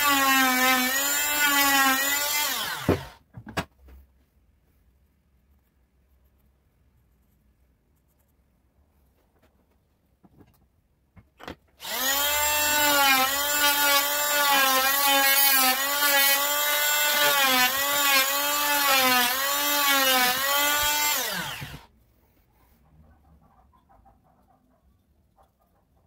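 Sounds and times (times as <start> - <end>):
oscillating tool cutting wood: 0.0 - 3.2, 11.8 - 21.9.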